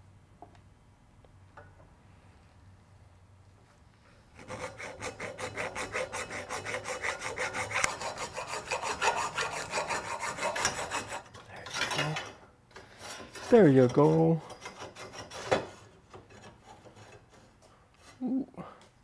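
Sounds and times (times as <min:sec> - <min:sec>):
rhythmic metal-on-metal rasping: 0:04.4 - 0:17.6.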